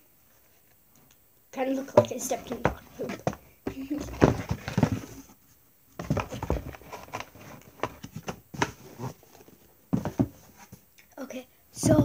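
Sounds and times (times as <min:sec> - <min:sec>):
rustling: 0:01.7 - 0:10.9
handling noise: 0:01.9 - 0:05.3, 0:06.0 - 0:10.8.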